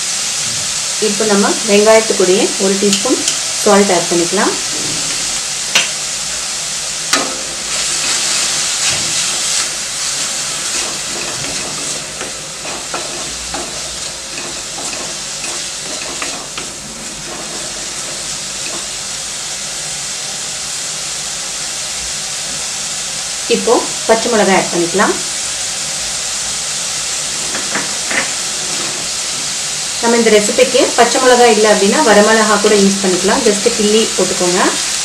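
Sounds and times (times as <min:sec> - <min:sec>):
onions sizzling in hot oil: 0:00.0 - 0:35.0
wooden spatula scraping a pan: 0:07.7 - 0:19.0, 0:27.2 - 0:29.6.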